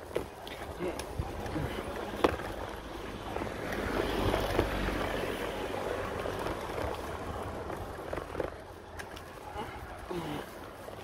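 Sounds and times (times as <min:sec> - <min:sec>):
bicycle tyres on brick paving: 0:00.0 - 0:11.0
wind over microphone: 0:00.0 - 0:11.0.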